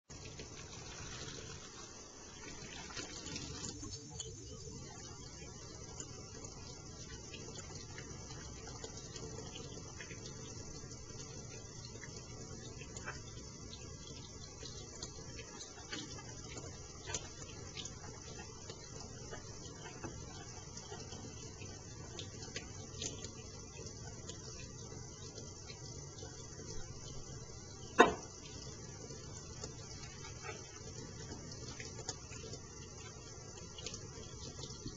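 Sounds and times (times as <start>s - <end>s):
tap water running into sink: 0.1s - 34.9s
soapy hands rubbing: 0.2s - 3.6s.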